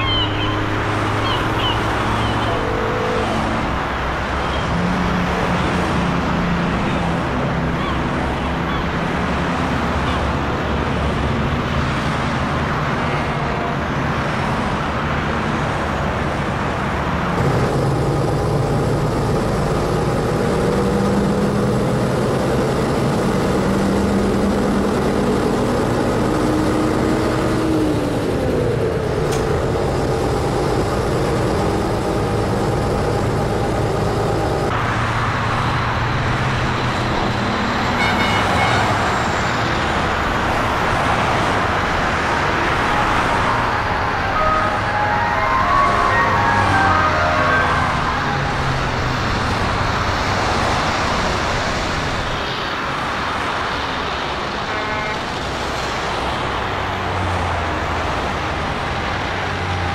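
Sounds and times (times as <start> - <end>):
road traffic: 0.0 - 59.9
low engine drone: 41.5 - 50.6.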